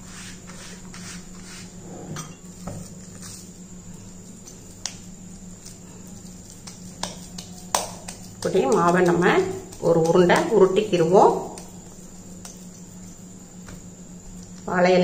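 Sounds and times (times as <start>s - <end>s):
steady low hum: 0.0s - 15.0s
hand squeezing dough in bowl: 2.8s - 14.5s.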